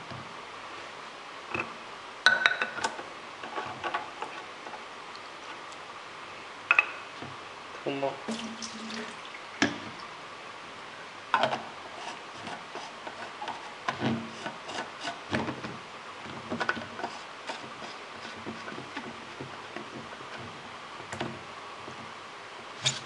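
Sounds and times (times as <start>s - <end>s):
rubbing and scraping: 11.9s - 15.6s, 16.6s - 20.6s.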